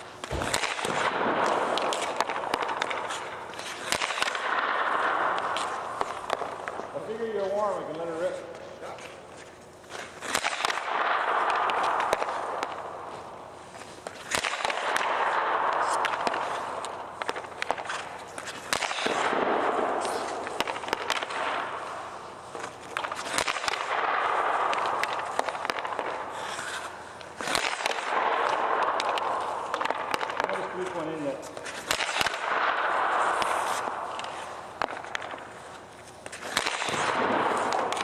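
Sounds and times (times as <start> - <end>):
hockey stick cracking puck: 0.0 - 38.0
scraping on ice: 25.0 - 28.1.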